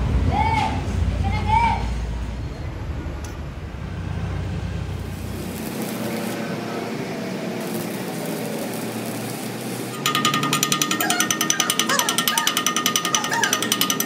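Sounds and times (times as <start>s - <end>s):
thin steady machine noise: 4.7s - 14.0s.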